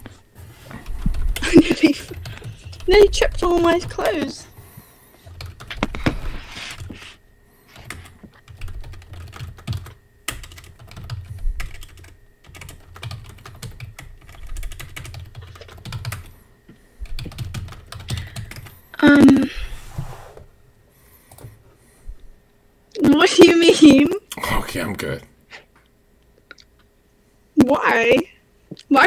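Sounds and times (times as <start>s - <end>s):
keyboard typing clicks: 7.8s - 16.3s.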